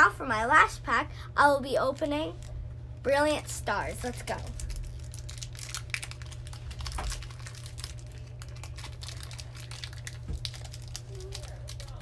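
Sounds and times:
foil wrapper crinkling: 0:04.0 - 0:12.0.

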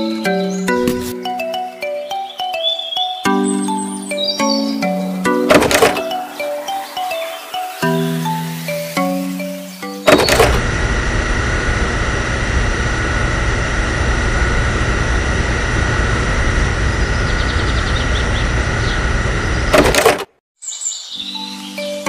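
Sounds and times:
small motor humming: 0:07.9 - 0:20.3.

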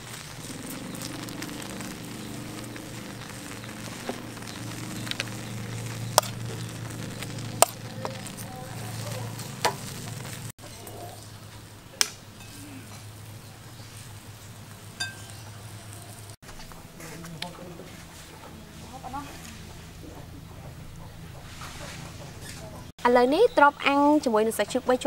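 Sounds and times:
food sizzling on a grill: 0:00.0 - 0:10.6, 0:12.4 - 0:16.4.

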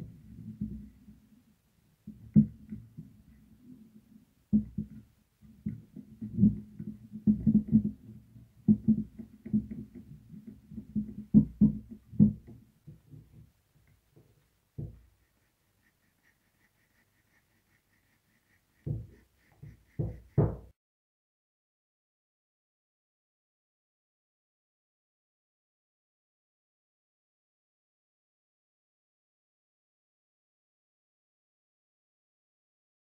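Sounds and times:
plastic fan wheel knocking and rubbing: 0:02.0 - 0:03.4, 0:04.5 - 0:20.8.

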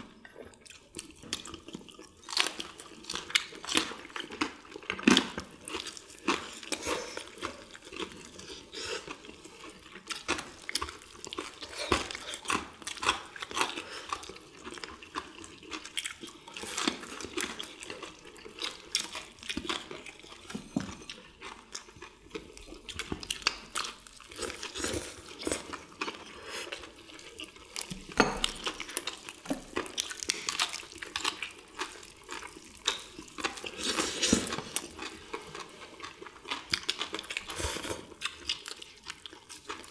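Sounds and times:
fried batter crunching: 0:21.4 - 0:39.9.

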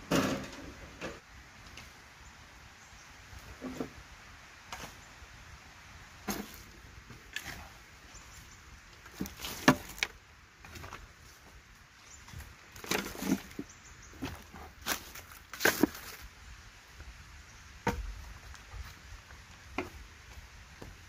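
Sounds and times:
hoe scraping soil and leaves: 0:00.0 - 0:02.0, 0:02.9 - 0:04.0, 0:06.0 - 0:16.4.

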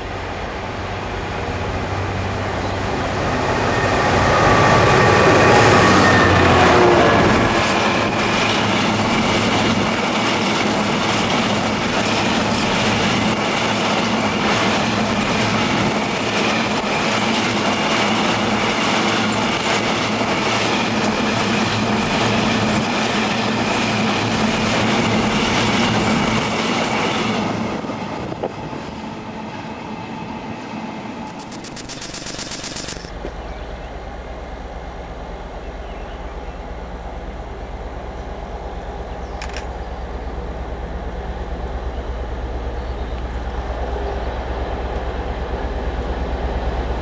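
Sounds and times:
diesel locomotive engine passing: 0:00.0 - 0:31.0, 0:39.9 - 0:47.0.

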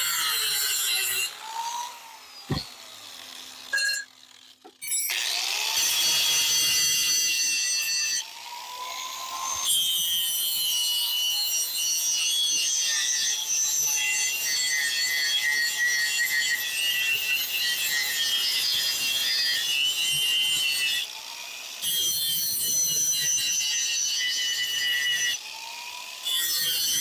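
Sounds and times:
angle grinder grinding metal: 0:00.0 - 0:27.0.

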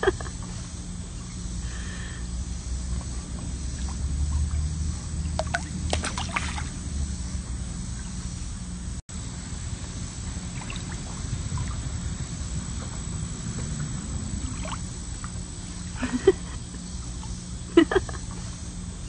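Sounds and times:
low steady rumble: 0:00.0 - 0:19.0
water lapping and trickling: 0:02.9 - 0:06.8, 0:10.3 - 0:19.0
small water splashes: 0:05.4 - 0:06.8, 0:10.5 - 0:11.8.

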